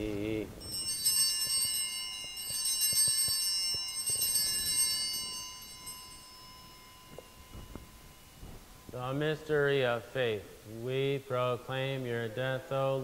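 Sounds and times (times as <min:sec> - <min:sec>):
hand bells jangling: 0:00.6 - 0:09.7.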